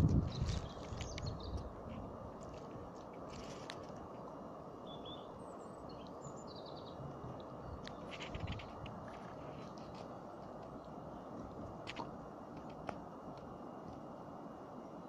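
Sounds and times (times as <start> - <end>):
steady rushing noise: 0.0 - 4.9.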